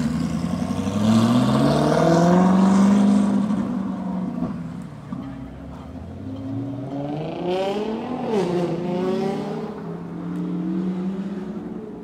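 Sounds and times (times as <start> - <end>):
sports car engine accelerating: 0.0 - 4.6.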